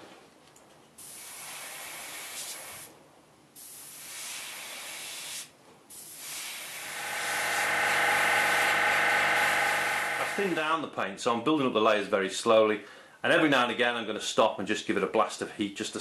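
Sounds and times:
airbrush spraying hiss: 0:01.0 - 0:02.9, 0:03.6 - 0:10.5
heat gun fan whine: 0:05.9 - 0:10.9.

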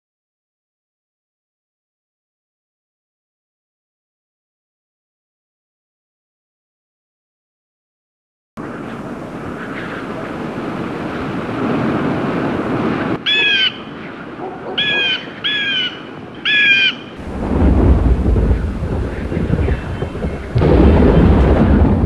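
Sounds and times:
bird calls: 0:08.6 - 0:11.6, 0:12.9 - 0:17.4, 0:18.0 - 0:21.3
wind blowing: 0:08.6 - 0:22.0
deep rumble of thunder: 0:17.2 - 0:22.0.

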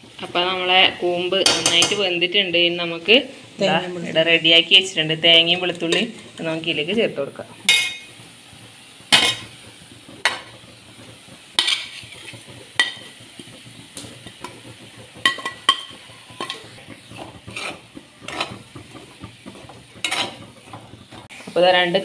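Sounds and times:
spoon scraping in metal pan: 0:07.7 - 0:08.2, 0:09.1 - 0:09.6, 0:11.6 - 0:13.2, 0:15.2 - 0:21.6.

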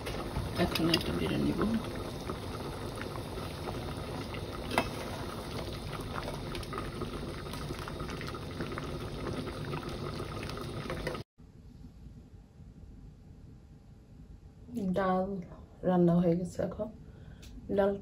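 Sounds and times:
lentils boiling in a pot: 0:00.0 - 0:11.3.

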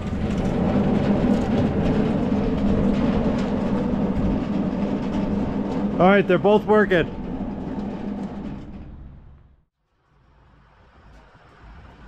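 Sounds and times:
low machine hum: 0:00.0 - 0:09.6
mechanical clatter: 0:00.0 - 0:09.6.

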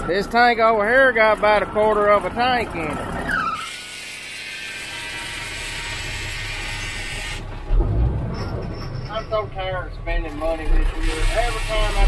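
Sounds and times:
fuel hissing through nozzle: 0:03.6 - 0:07.5, 0:10.9 - 0:12.0.

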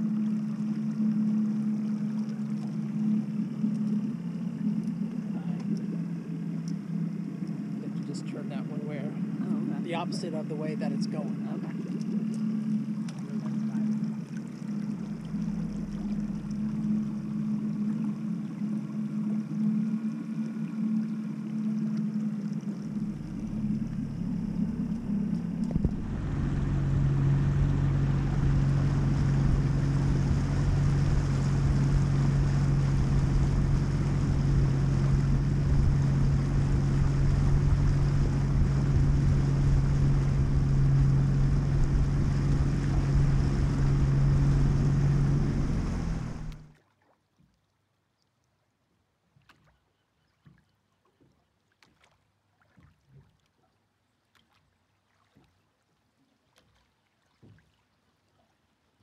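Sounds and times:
rushing water: 0:00.0 - 0:47.2
boat motor low hum: 0:00.0 - 0:59.0
wind noise: 0:25.6 - 0:46.6.

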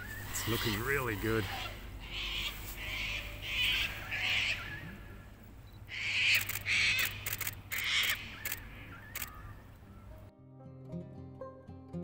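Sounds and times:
birds calling harshly: 0:00.0 - 0:10.2
sharp clicks: 0:06.3 - 0:09.4.

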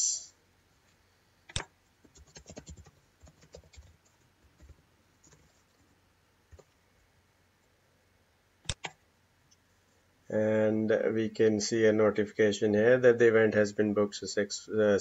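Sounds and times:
faint keyboard typing: 0:01.5 - 0:06.8, 0:08.6 - 0:09.6.

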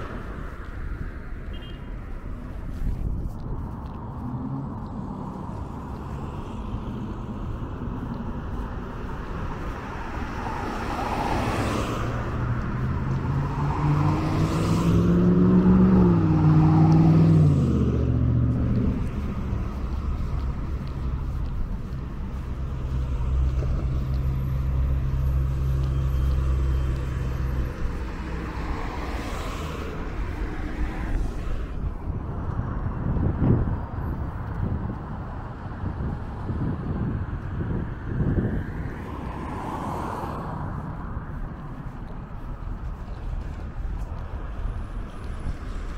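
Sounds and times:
road traffic passing: 0:00.0 - 0:45.9
vehicle engine droning: 0:03.1 - 0:35.6.

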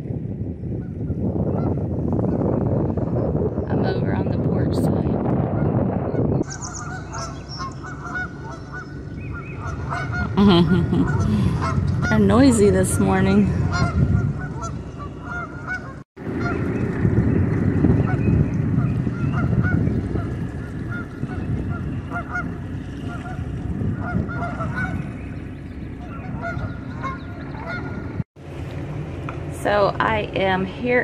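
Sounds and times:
low rumble: 0:00.0 - 0:31.0
geese honking: 0:06.4 - 0:10.4, 0:11.0 - 0:16.6, 0:18.8 - 0:25.3, 0:26.0 - 0:28.2.

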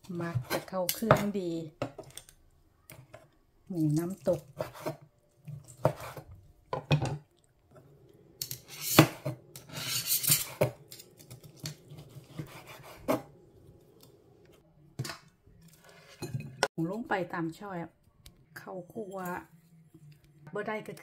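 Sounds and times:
knife scraping board: 0:04.4 - 0:05.0, 0:05.8 - 0:06.3, 0:08.4 - 0:10.8, 0:11.5 - 0:13.3.

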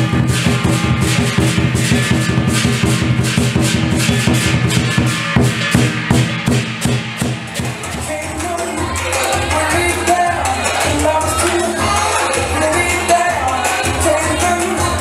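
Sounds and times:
steady drum beat: 0:00.0 - 0:15.0.

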